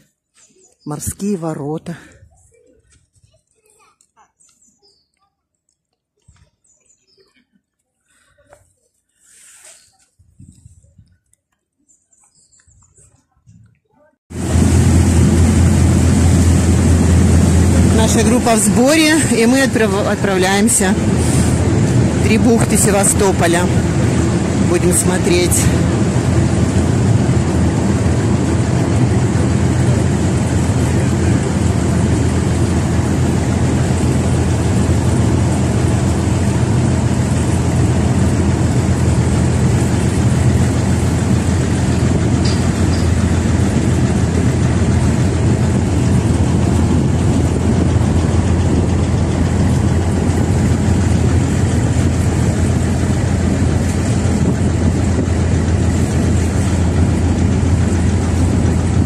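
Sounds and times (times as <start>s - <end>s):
boat engine droning: 14.3s - 59.0s.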